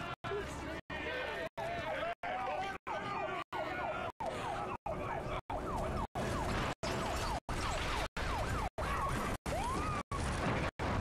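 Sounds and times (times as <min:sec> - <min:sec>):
siren in falling sweeps: 0:02.9 - 0:10.1.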